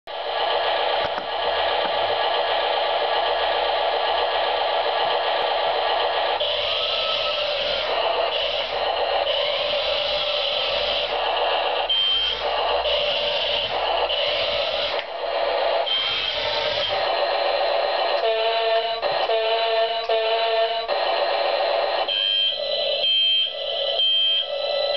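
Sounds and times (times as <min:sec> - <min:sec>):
tinny electronic engine drone: 0:00.1 - 0:24.9
electronic sound effect bursts: 0:01.4 - 0:15.0, 0:15.8 - 0:17.2.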